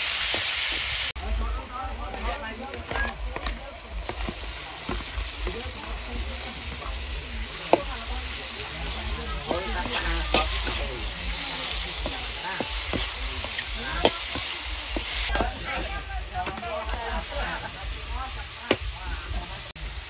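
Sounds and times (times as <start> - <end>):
food sizzling in oil: 0.0 - 20.0.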